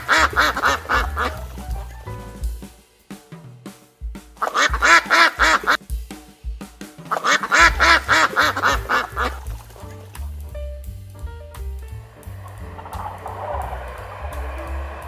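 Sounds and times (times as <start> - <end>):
duck quacking: 0.0 - 1.5, 4.4 - 5.8, 7.1 - 9.9
background music: 0.0 - 3.3, 7.2 - 15.0.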